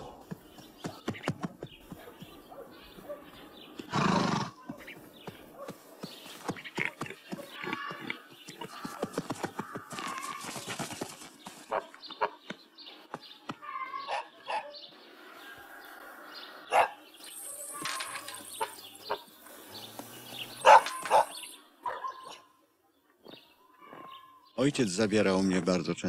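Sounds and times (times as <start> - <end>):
dog barking: 2.0 - 3.4, 5.5 - 5.8, 11.7 - 12.4, 13.7 - 14.8, 16.7 - 17.0, 20.6 - 22.5.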